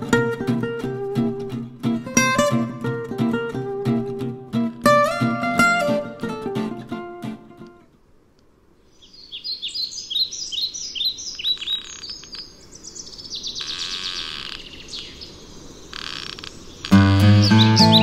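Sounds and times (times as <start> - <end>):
plucked acoustic guitar music: 0.0 - 7.9, 16.9 - 18.0
songbird chirping and trilling: 8.8 - 18.0.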